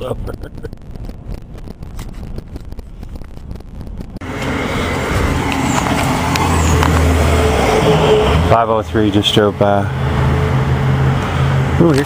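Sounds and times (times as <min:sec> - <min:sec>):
traffic noise: 0:00.0 - 0:12.0
large vehicle passing close: 0:04.2 - 0:11.9.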